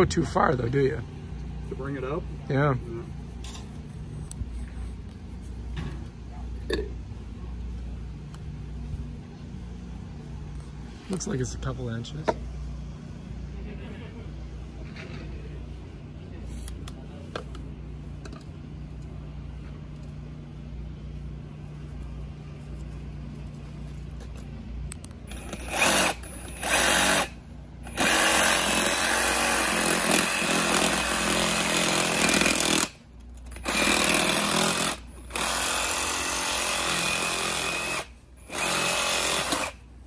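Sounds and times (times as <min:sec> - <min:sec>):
handheld power tool running: 0:25.3 - 0:39.8.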